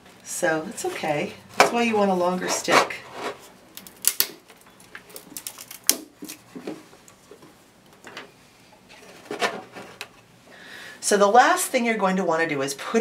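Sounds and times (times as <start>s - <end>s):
wood scraping against cardboard: 2.4s - 3.6s
twig clicking in cardboard carton: 3.8s - 6.4s.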